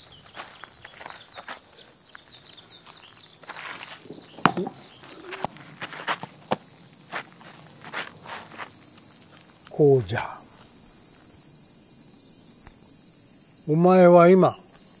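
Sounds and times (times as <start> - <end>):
footsteps on dirt: 0.0 - 11.4
high buzz of insects: 0.0 - 15.0.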